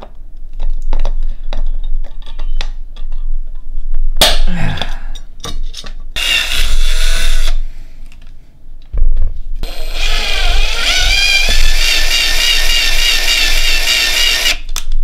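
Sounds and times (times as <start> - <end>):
electric drill whining: 6.2 - 7.6, 9.6 - 14.6.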